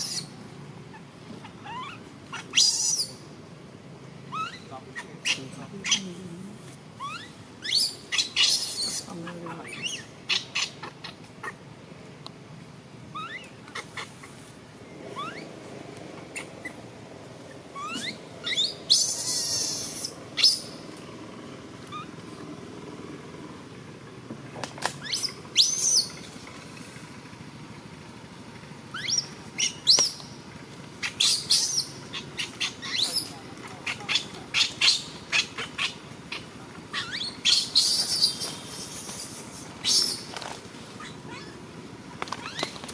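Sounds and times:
baby monkey squealing: 0:00.0 - 0:00.3, 0:00.9 - 0:03.2, 0:04.3 - 0:06.1, 0:07.0 - 0:11.6, 0:13.1 - 0:14.4, 0:15.1 - 0:15.5, 0:16.3 - 0:16.8, 0:17.7 - 0:20.8, 0:21.9 - 0:22.1, 0:25.0 - 0:26.1, 0:28.9 - 0:30.2, 0:31.0 - 0:41.6, 0:42.4 - 0:42.8
baby monkey screaming: 0:00.0 - 0:03.2, 0:04.3 - 0:06.1, 0:07.0 - 0:11.6, 0:13.1 - 0:14.4, 0:15.1 - 0:15.6, 0:16.3 - 0:16.9, 0:17.5 - 0:20.8, 0:21.9 - 0:22.2, 0:25.0 - 0:26.2, 0:28.9 - 0:30.2, 0:31.0 - 0:41.6, 0:42.3 - 0:42.9.

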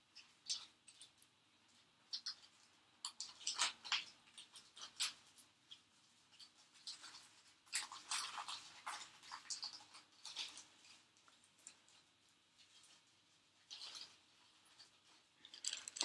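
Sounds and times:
metal chain clicking and rustling: 0:15.4 - 0:16.0.

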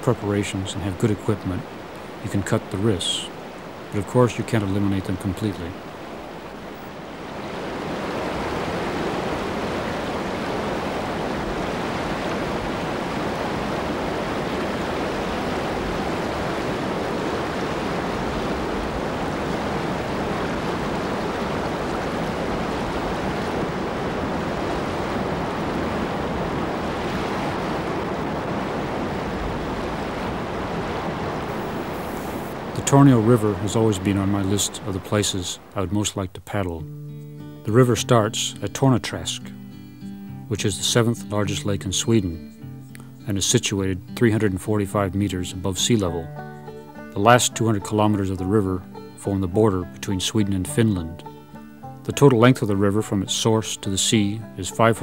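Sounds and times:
river rapids rushing: 0:00.0 - 0:36.2.

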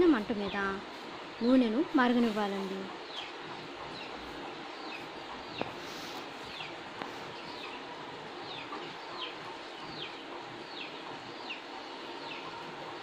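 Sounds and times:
steady low hiss: 0:00.0 - 0:13.0
bird chirping: 0:02.6 - 0:13.0.

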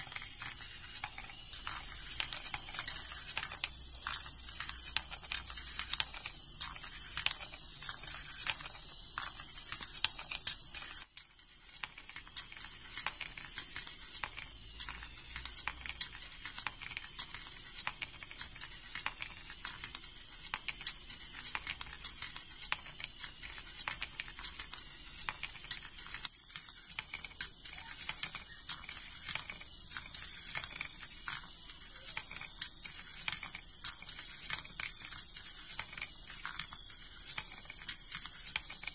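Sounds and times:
steady high hiss: 0:00.0 - 0:38.9
steel balls clicking and rattling: 0:00.0 - 0:38.9.

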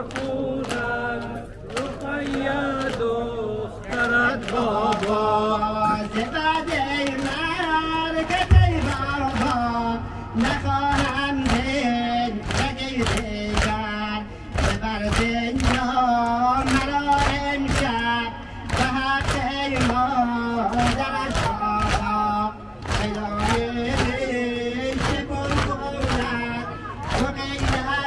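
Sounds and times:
man chanting a lament: 0:00.0 - 0:28.0
many voices chanting: 0:00.0 - 0:28.0
heavy thump: 0:08.5 - 0:09.4.

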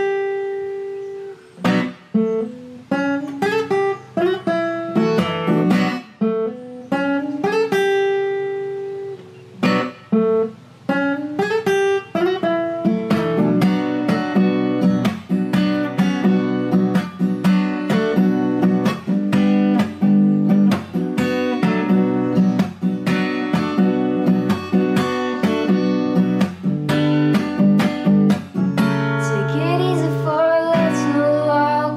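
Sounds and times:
acoustic guitar: 0:00.0 - 0:31.9.

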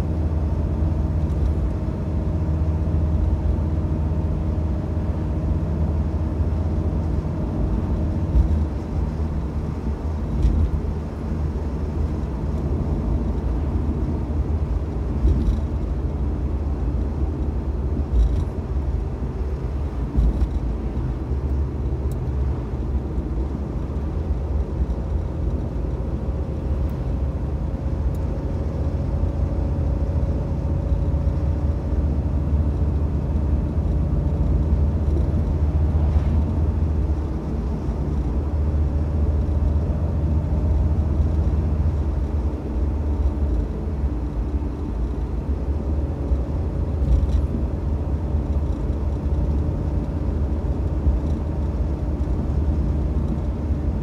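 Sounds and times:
car engine and tyre rumble: 0:00.0 - 0:54.0.

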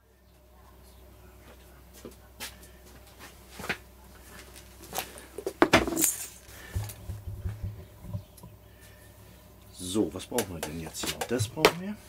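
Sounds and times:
objects knocking on wooden workbench: 0:05.4 - 0:06.0, 0:06.7 - 0:08.3
dull handling bumps: 0:05.4 - 0:08.3.

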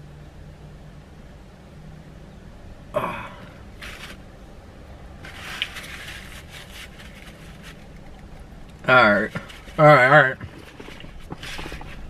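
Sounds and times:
paper wrapper rustling: 0:03.8 - 0:04.2, 0:05.2 - 0:08.5.

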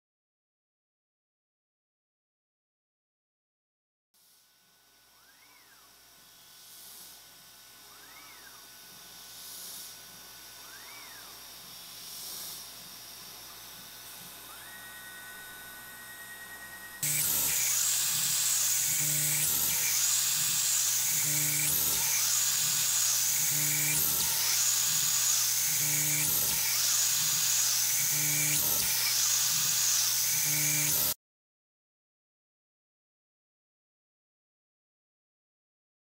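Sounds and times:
router spindle whining while drilling: 0:04.9 - 0:31.2.

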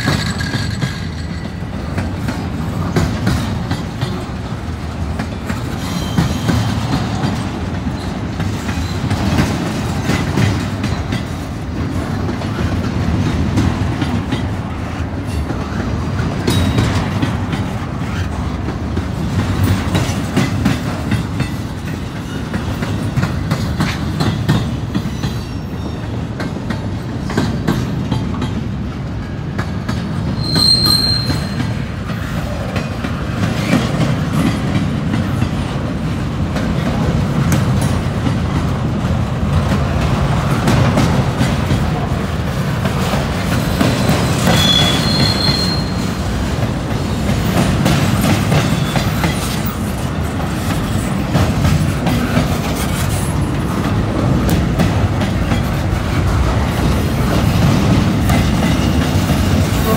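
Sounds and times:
freight train rumbling past: 0:00.0 - 0:59.9
wheels clacking over rail: 0:00.0 - 0:59.9
high wheel squeal: 0:05.8 - 0:06.8, 0:30.4 - 0:31.8, 0:44.2 - 0:46.1, 0:48.6 - 0:49.3.

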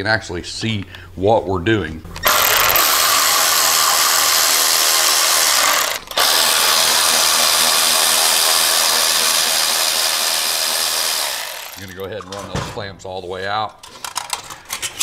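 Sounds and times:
electric ratchet spinning: 0:02.2 - 0:12.0.

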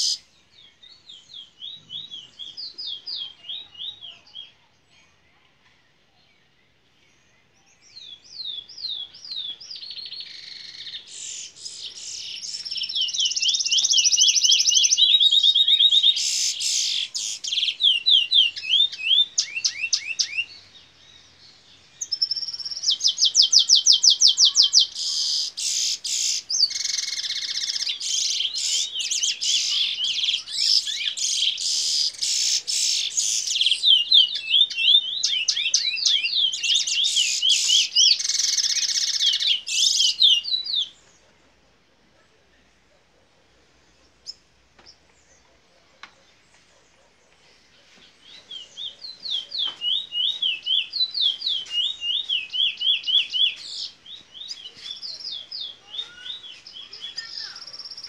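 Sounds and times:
songbird trilling and whistling: 0:00.0 - 0:04.5, 0:07.8 - 0:20.6, 0:22.0 - 0:41.0, 0:48.2 - 0:58.0.

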